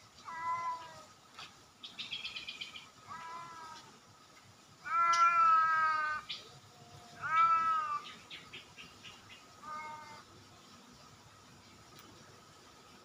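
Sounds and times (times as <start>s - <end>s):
cat meowing: 0.2s - 1.1s, 3.1s - 3.9s, 4.8s - 6.2s, 7.1s - 8.0s, 9.6s - 10.2s.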